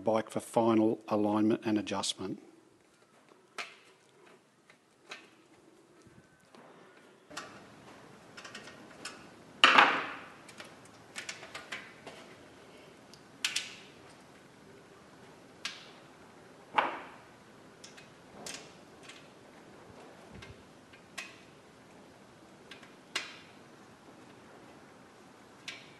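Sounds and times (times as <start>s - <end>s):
metal clicks and clanks: 8.3s - 9.3s.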